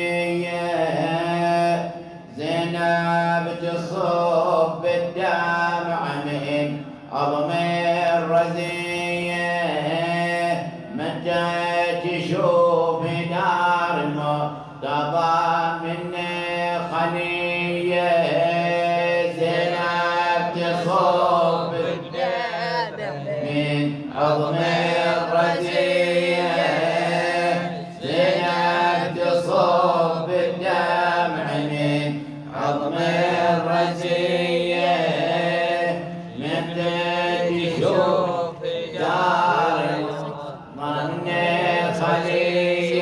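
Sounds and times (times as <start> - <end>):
person chanting a mourning elegy: 18.2 - 43.0.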